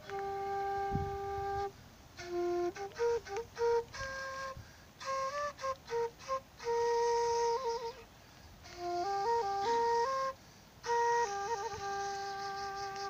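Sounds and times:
bamboo flute playing: 0.0s - 13.0s
breath noise: 4.6s - 5.0s, 8.0s - 8.8s, 10.3s - 10.8s.

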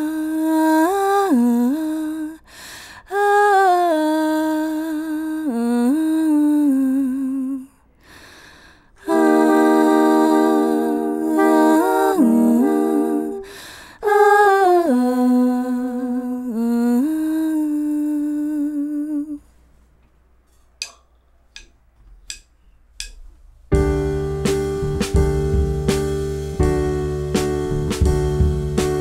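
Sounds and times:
soprano saxophone: 9.0s - 19.4s
wordless jazz vocal: 9.0s - 19.5s
jazz band with drums: 9.1s - 13.4s, 23.7s - 29.0s
trombone: 9.1s - 13.5s.

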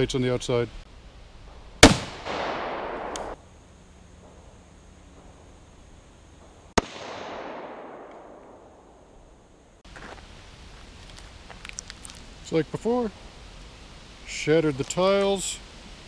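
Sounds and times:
gunshot echo through woods: 1.8s - 3.4s, 6.8s - 9.2s
rifle shot hitting steel plate: 1.8s - 3.4s.

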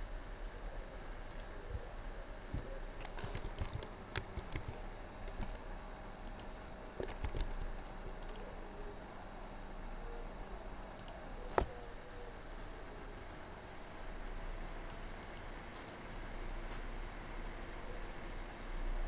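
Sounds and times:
typing on computer keyboard: 3.0s - 5.7s, 6.3s - 8.5s.

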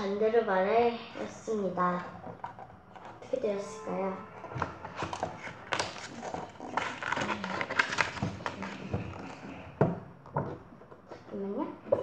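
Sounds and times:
book pages rustling: 1.9s - 3.4s, 4.4s - 9.6s.

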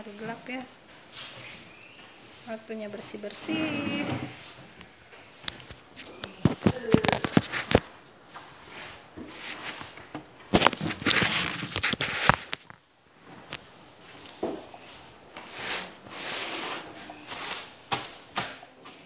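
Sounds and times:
broom sweeping wooden surface: 3.3s - 5.7s, 8.3s - 10.0s, 14.8s - 18.2s.

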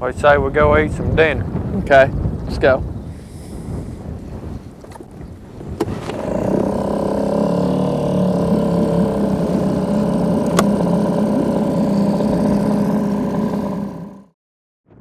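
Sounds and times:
outboard motor running: 4.8s - 14.4s.

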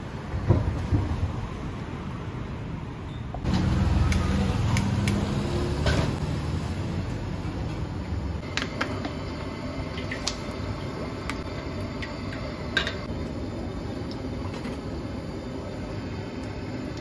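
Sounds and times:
gas burner hissing: 3.4s - 17.0s.

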